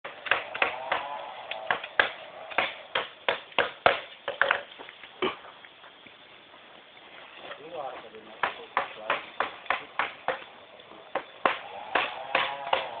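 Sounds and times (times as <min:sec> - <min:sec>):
sharp knocks: 0:00.1 - 0:04.6, 0:08.4 - 0:10.5, 0:11.1 - 0:13.0.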